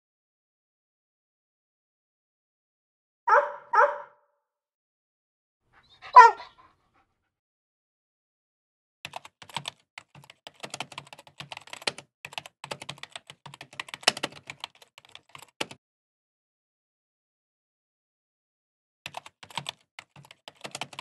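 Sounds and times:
small dog barking: 3.3 - 4.3, 5.8 - 6.7
laptop keyboard typing: 9.1 - 15.8, 19.1 - 21.0.

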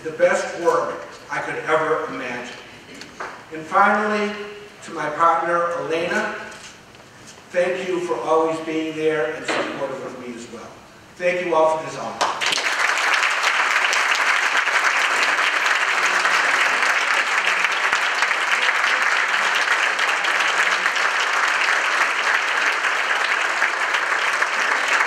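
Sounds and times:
audience applauding: 12.2 - 25.0.

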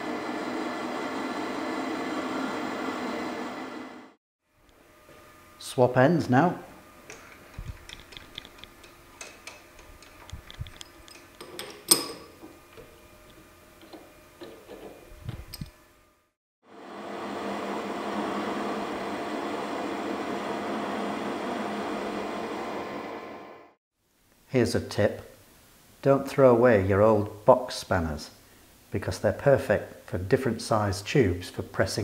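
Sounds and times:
lathe humming whine: 0.0 - 5.6, 16.7 - 23.8
metal parts clicking and knocking: 7.5 - 12.3.

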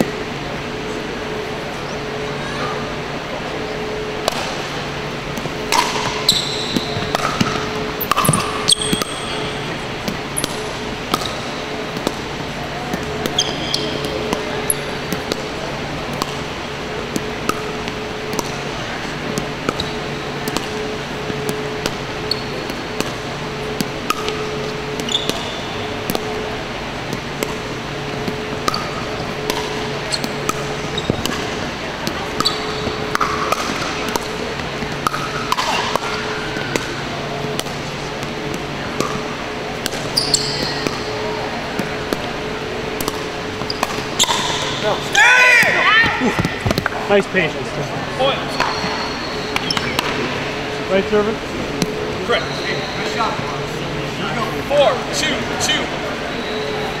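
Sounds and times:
steady hum: 0.0 - 57.0
sneakers squeaking on court: 3.8 - 45.1, 48.4 - 50.9, 51.7 - 53.6
paddles hitting plastic ball: 10.0 - 22.0, 22.6 - 41.1, 41.8 - 44.9.

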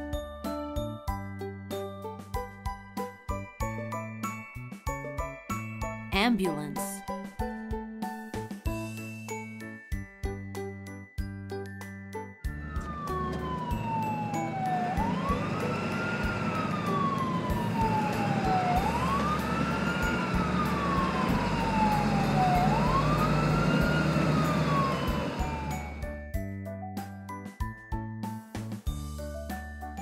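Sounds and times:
ambulance siren wailing: 12.6 - 26.1.

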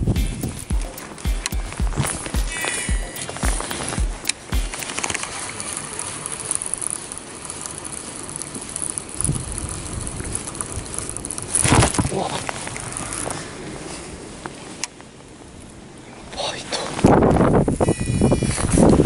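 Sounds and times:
fishing rod handling noise: 0.6 - 9.1
fishing reel clicking: 0.6 - 11.7.

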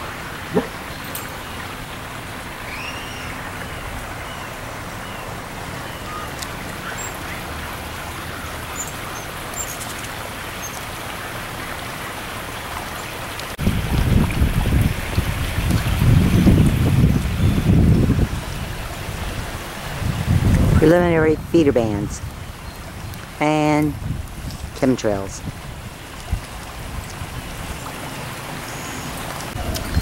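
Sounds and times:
steady outdoor hiss: 0.0 - 30.0
wind buffeting microphone: 13.6 - 24.8, 25.4 - 27.8, 29.4 - 30.0.

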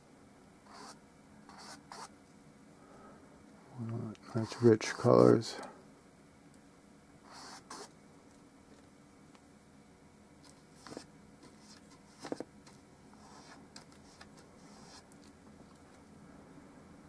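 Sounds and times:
paintbrush scratching on canvas: 0.7 - 2.1, 4.4 - 5.1, 7.3 - 7.9, 10.8 - 12.4, 13.2 - 15.1.

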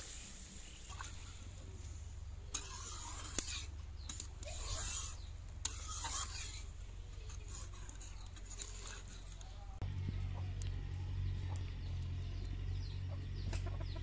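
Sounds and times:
liquid swishing: 0.1 - 9.4.

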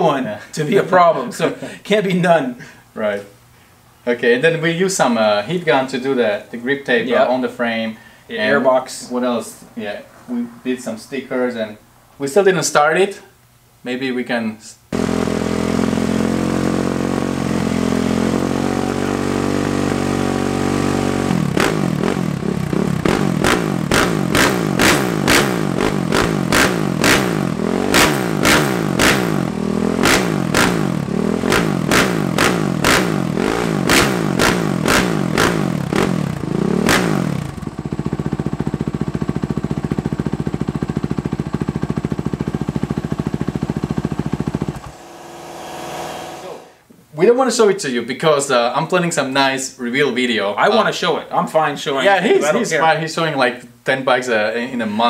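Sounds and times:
motorcycle engine revving: 14.9 - 46.8
exhaust cracks: 15.0 - 46.9.

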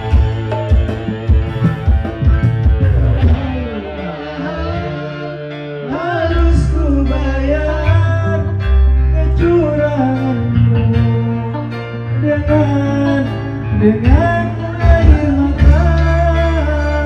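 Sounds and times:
instrumental accompaniment: 0.0 - 17.0
man singing into microphone: 0.0 - 17.0.

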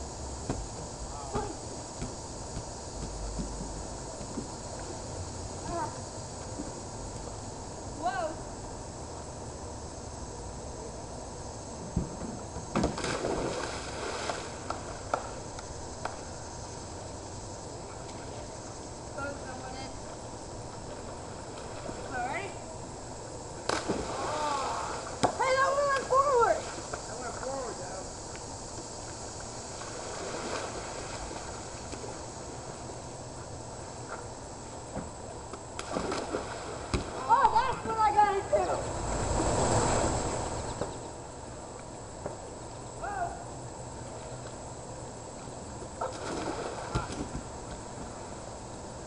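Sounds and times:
outdoor background hiss: 0.0 - 49.0
churning water with slaps: 12.7 - 15.3, 23.6 - 27.1, 35.8 - 38.0, 46.0 - 47.5
person splashing into pool: 12.8 - 14.7, 23.7 - 25.2, 35.8 - 37.6, 46.0 - 47.3.

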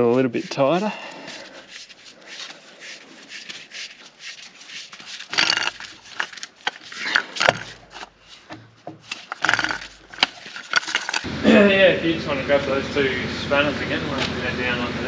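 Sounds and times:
metal scraping and rubbing: 0.0 - 11.4
metal clinks and knocks: 5.2 - 11.3.

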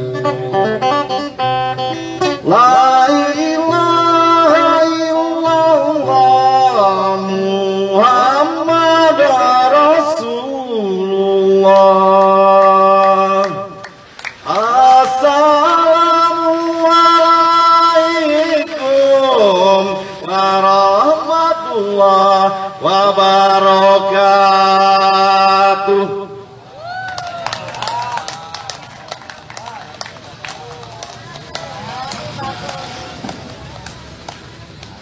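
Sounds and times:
man chanting: 2.4 - 13.8, 14.4 - 26.4.

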